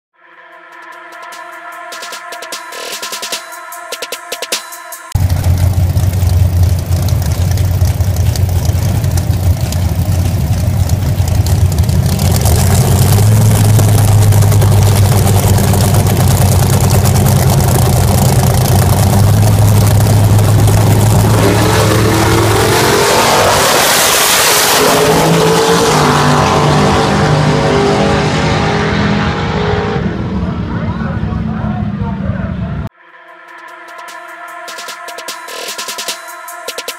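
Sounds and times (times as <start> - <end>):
engine revving: 5.1 - 32.9
drag car engines idling: 5.2 - 22.9.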